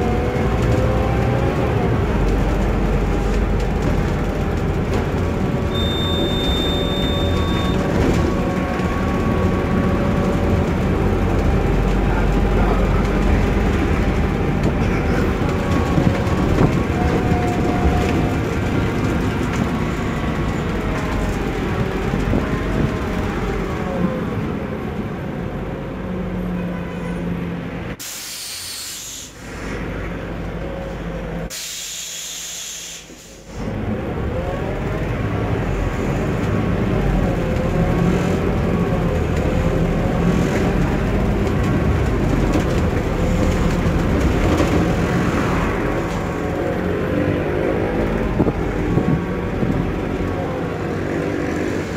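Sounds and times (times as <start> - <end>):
bus engine and road noise: 0.0 - 51.9
loud air hisses: 28.0 - 29.8, 31.5 - 33.5.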